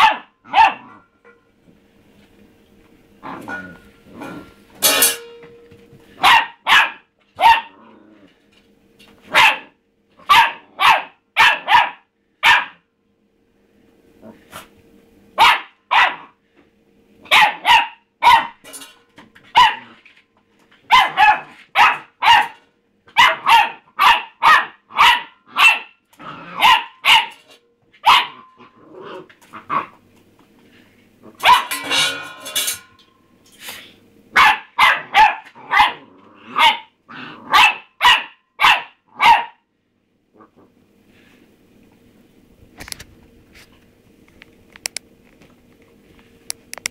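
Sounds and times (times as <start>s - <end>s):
puppy barking: 0.0s - 1.0s, 6.2s - 7.8s, 9.3s - 12.8s, 15.4s - 16.4s, 17.2s - 18.6s, 19.5s - 20.0s, 20.8s - 27.4s, 28.0s - 28.6s, 31.4s - 32.0s, 34.3s - 39.6s.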